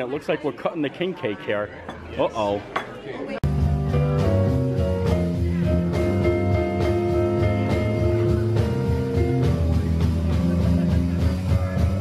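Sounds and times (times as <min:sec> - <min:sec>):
drum kit with cymbals: 0:03.4 - 0:12.0
electric bass line: 0:03.4 - 0:12.0
held chords: 0:03.4 - 0:12.0.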